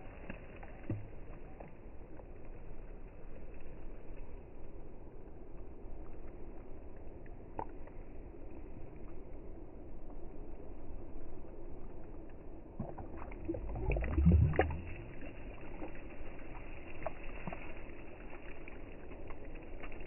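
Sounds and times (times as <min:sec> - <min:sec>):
small water ticks: 0:00.0 - 0:20.0
fish splashing in shallow water: 0:12.6 - 0:20.0.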